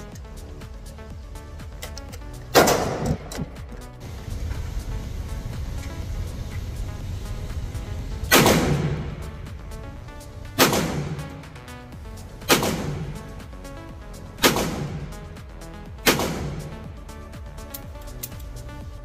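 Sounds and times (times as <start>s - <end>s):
background music: 0.0s - 19.0s
gunshots with ringing tail: 8.3s - 9.2s, 10.6s - 11.5s, 12.4s - 13.2s, 14.4s - 15.1s, 16.0s - 16.7s.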